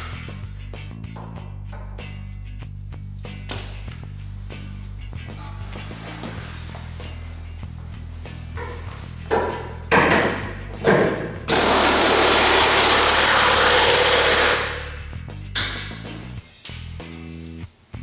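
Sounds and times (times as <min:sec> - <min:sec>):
pneumatic impact wrench bursts: 0:11.5 - 0:14.8.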